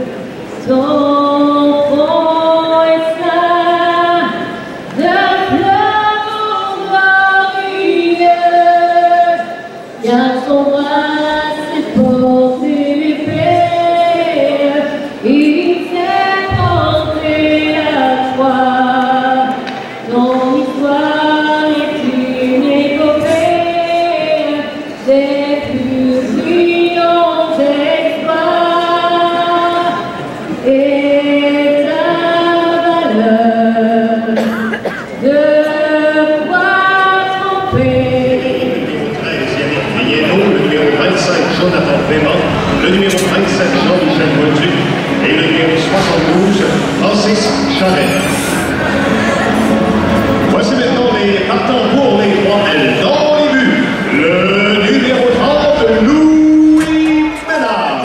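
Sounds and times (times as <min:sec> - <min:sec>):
voices singing in harmony: 0:00.0 - 0:58.0.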